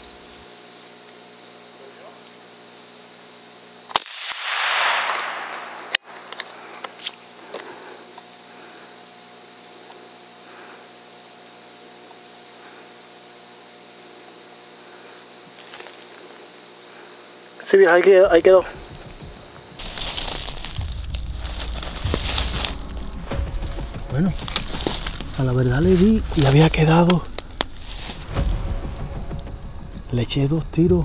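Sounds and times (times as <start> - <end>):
high-pitched insect trill: 0.0 - 31.0
rifle shots: 3.9 - 6.0.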